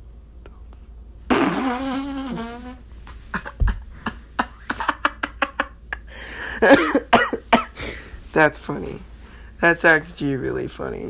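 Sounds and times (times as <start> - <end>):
man laughing: 3.3 - 7.7.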